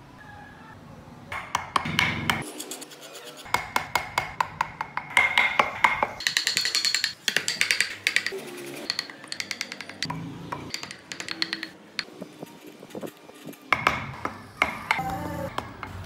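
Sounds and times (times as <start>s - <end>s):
mallet tapping carving chisel: 1.3s - 2.4s, 3.5s - 8.3s, 8.9s - 12.1s.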